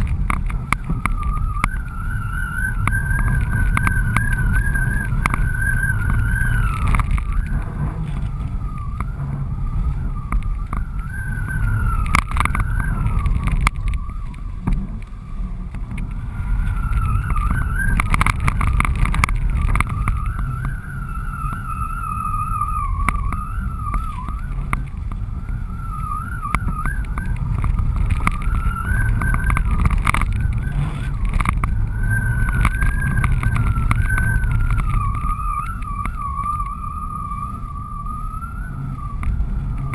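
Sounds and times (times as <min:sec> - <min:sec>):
thin wavering whistle: 0:00.0 - 0:39.9
wind buffeting camera: 0:00.0 - 0:39.9.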